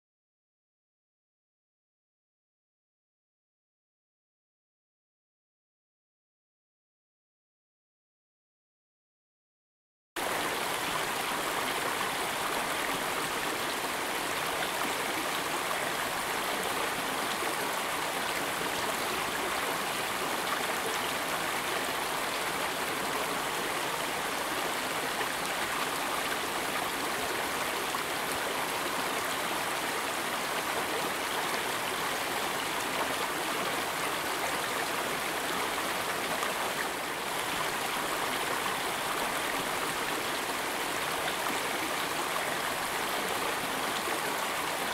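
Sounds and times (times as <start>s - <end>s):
stream water flowing: 10.2s - 44.9s.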